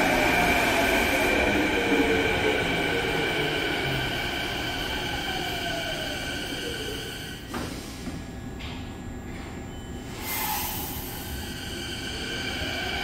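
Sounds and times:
electric train motor whine: 0.0 - 7.4.

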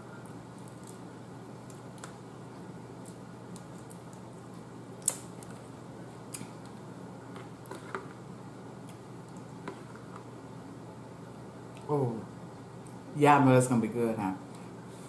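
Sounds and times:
low steady hum: 0.0 - 15.0
crab shell cracking and clicking: 3.0 - 4.3, 5.0 - 5.6.

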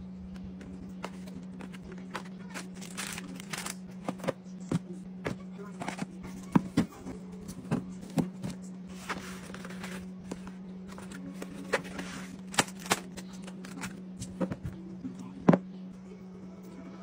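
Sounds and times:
steady low hum: 0.0 - 17.0
packaging rustling: 1.0 - 4.4, 7.7 - 14.6.

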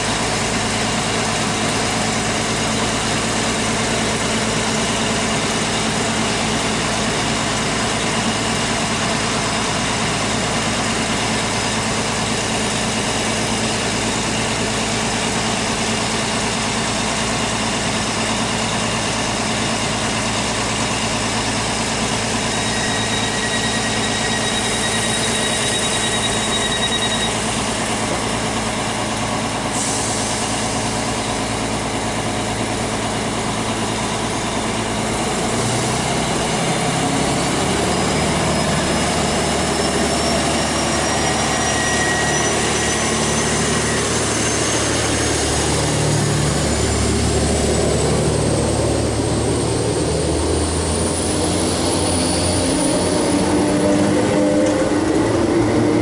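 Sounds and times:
train engine idling: 0.0 - 56.0
steady high beep: 22.5 - 27.7.

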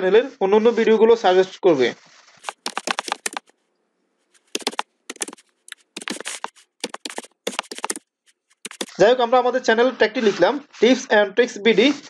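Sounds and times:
keyboard keys clicking: 2.4 - 3.4.

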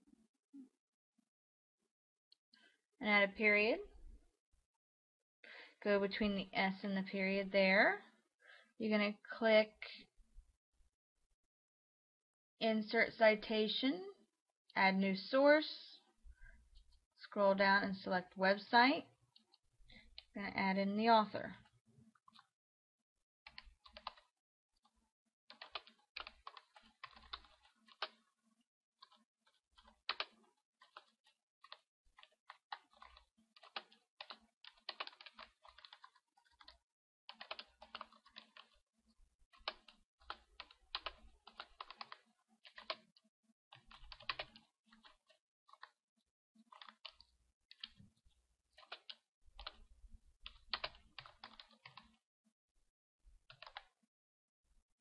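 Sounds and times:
typing on computer keyboard: 23.5 - 24.3, 25.5 - 28.2, 29.0 - 29.2, 29.8 - 38.8, 39.5 - 46.0, 46.7 - 48.0, 48.8 - 49.8, 50.5 - 52.2, 53.5 - 54.0.

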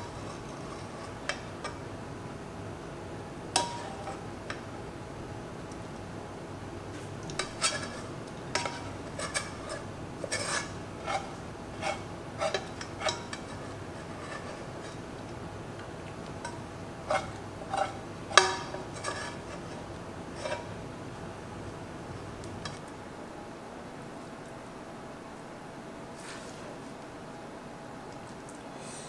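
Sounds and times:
metal spoon scraping a saucepan: 0.0 - 1.8, 3.6 - 4.6, 7.3 - 15.1, 16.4 - 20.8.

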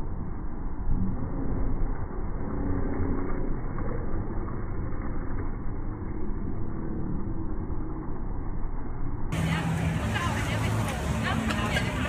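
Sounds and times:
busy open-air market din: 9.3 - 12.0.

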